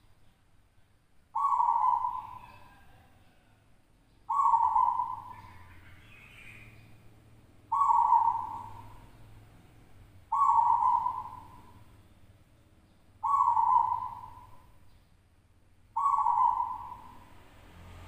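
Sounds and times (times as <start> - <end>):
dove cooing: 1.4 - 3.4, 4.3 - 6.7, 7.7 - 9.1, 10.3 - 11.9, 13.2 - 14.8, 16.0 - 17.3.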